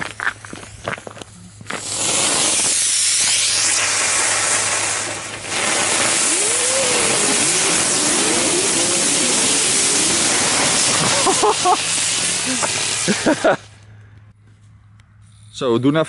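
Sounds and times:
firework hissing: 0:01.5 - 0:13.8.

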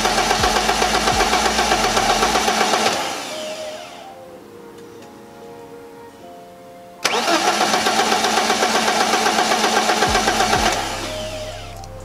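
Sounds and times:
car engine cranking and starting: 0:00.0 - 0:03.2, 0:07.0 - 0:12.0.

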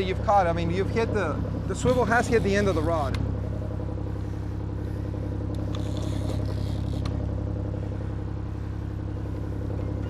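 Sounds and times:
boat engine droning: 0:00.0 - 0:10.0.

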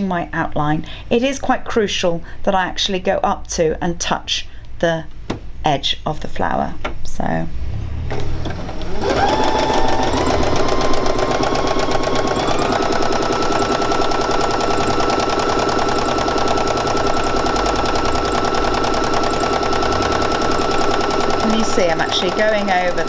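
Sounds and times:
sewing machine motor whine: 0:07.6 - 0:23.0
sewing machine needle clatter: 0:08.4 - 0:23.0.

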